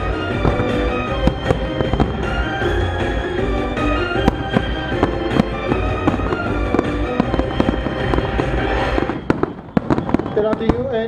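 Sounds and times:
loud music: 0.0s - 10.5s
firework shells bursting: 0.0s - 11.0s.

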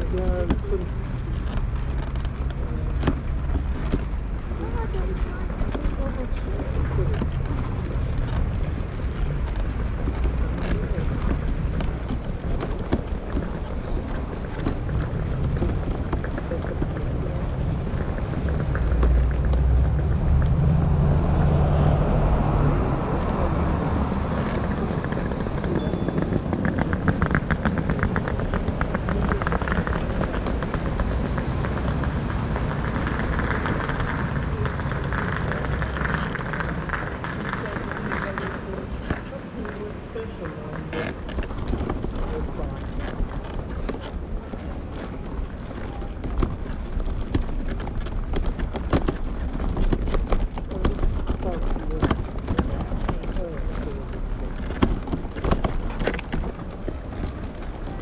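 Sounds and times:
footsteps clicking: 0.0s - 21.2s
steady low rumble: 0.0s - 58.0s
vehicle engine running: 0.0s - 58.0s
rapid clatter of clicks: 24.3s - 58.0s.

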